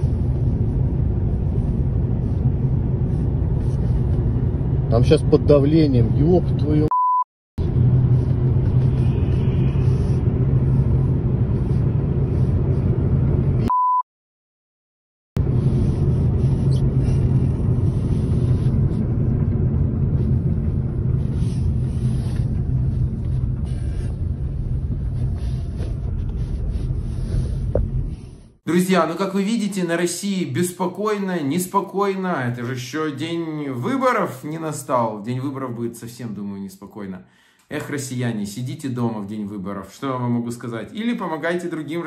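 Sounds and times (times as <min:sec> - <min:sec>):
car driving rumble: 0:00.0 - 0:06.9, 0:07.6 - 0:13.7, 0:15.4 - 0:28.6
short beep: 0:06.9 - 0:07.3.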